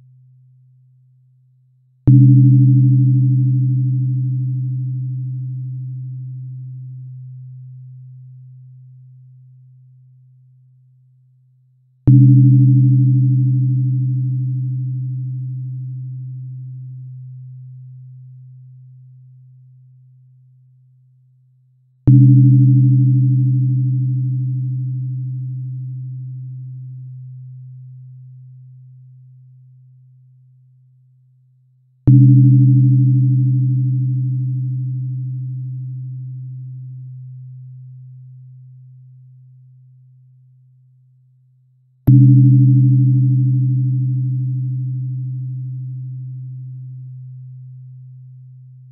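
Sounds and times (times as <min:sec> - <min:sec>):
tuning fork strike and hum: 0:02.0 - 0:11.0, 0:12.0 - 0:21.0, 0:22.0 - 0:31.0, 0:32.0 - 0:41.0, 0:42.1 - 0:48.9
low struck therapy tone humming: 0:42.1 - 0:48.9.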